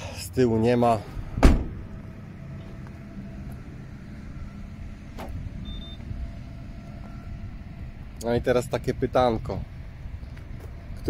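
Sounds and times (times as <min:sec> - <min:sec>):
low background rumble: 0:00.0 - 0:11.0
car door thudding shut: 0:01.4 - 0:01.9.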